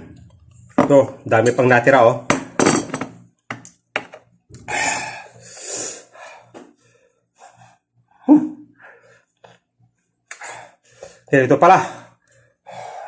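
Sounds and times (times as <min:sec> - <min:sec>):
man breathing hard and gasping: 0:04.6 - 0:07.9, 0:10.3 - 0:11.3, 0:11.9 - 0:13.0.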